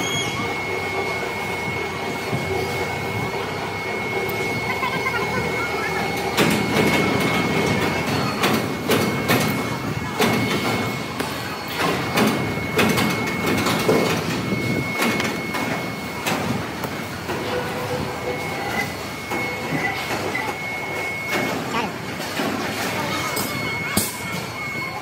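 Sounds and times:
factory machinery whining: 0.0 - 25.0.

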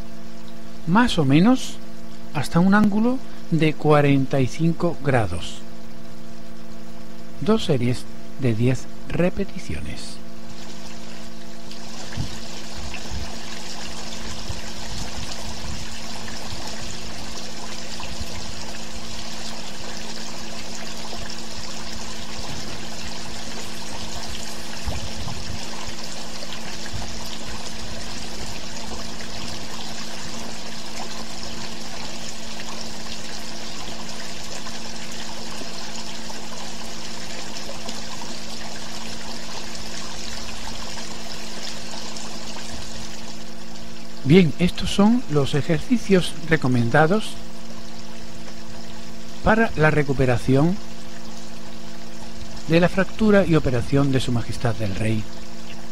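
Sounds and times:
constant low hum: 0.0 - 55.9
rushing water-like noise: 10.5 - 47.6.

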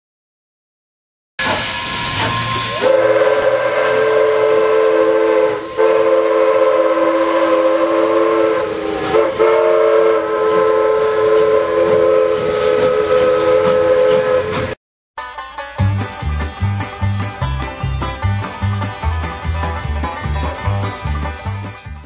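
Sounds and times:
steam hiss: 1.4 - 14.8
steam locomotive chime whistle: 1.4 - 14.8.

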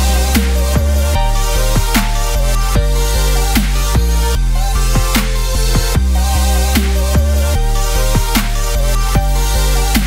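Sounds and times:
electronic music with heavy bass: 0.0 - 10.0.

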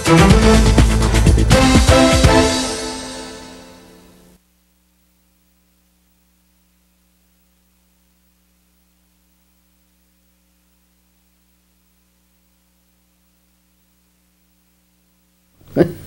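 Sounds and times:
faint electrical hum: 3.2 - 16.0.

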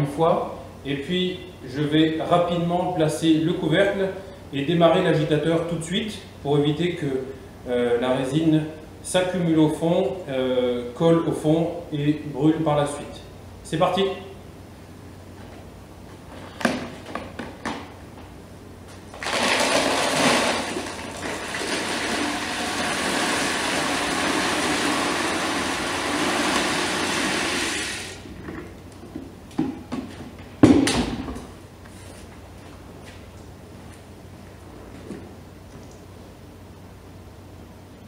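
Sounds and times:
resin pouring into water: 19.2 - 27.9.

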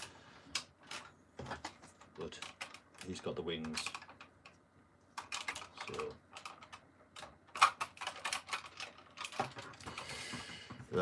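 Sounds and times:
plastic toy clicking and knocking: 0.0 - 4.6, 5.2 - 10.8.

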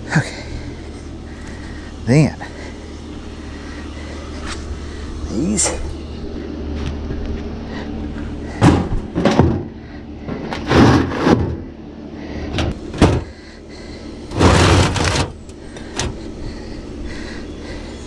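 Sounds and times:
concrete blocks scraping: 10.4 - 11.6, 14.3 - 15.4.

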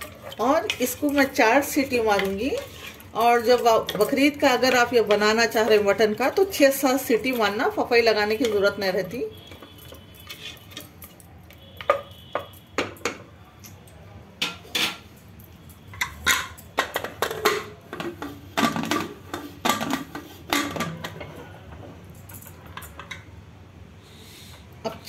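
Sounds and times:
metal spoon scraping pot: 0.0 - 12.6, 14.4 - 15.1
metal lid knocks and clanks: 16.0 - 21.3.

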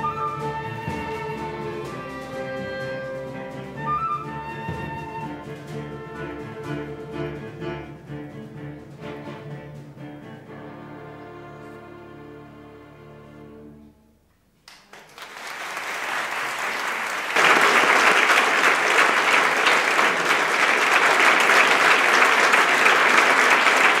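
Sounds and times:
audience applause: 14.7 - 24.0.

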